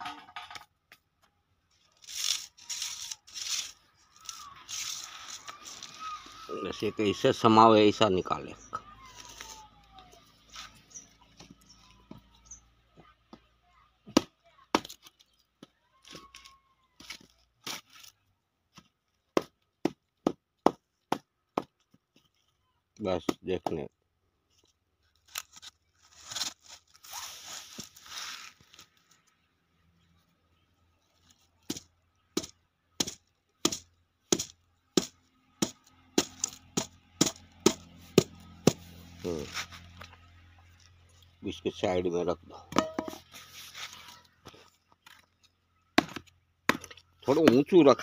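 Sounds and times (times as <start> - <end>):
metal tool striking dried dung: 32.4 - 39.6, 42.7 - 43.4.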